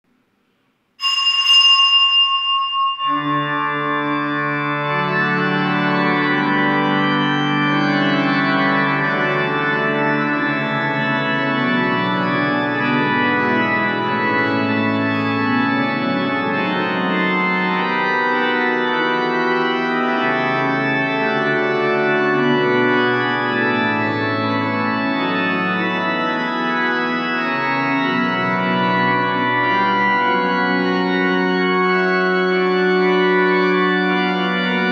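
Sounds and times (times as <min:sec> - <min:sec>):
small bell ringing: 0:01.0 - 0:03.9
church organ chords: 0:01.2 - 0:34.9.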